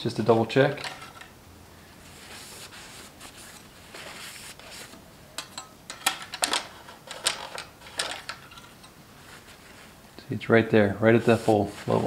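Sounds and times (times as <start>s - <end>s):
paper towel rustling: 2.0s - 5.0s, 9.2s - 10.1s, 11.0s - 12.0s.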